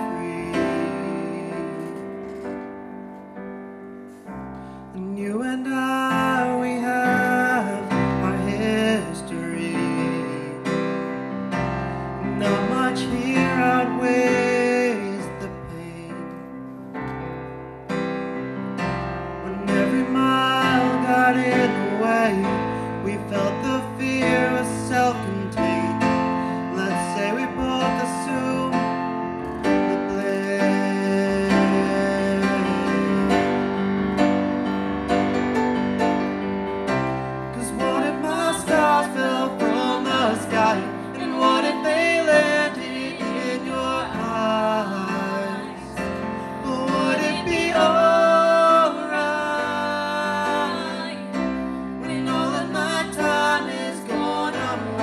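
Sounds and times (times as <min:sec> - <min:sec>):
man singing into microphone: 0:00.0 - 0:02.2, 0:04.9 - 0:11.0, 0:12.2 - 0:16.6, 0:19.4 - 0:33.8, 0:37.6 - 0:51.2
electric keyboard piano: 0:00.0 - 0:55.0.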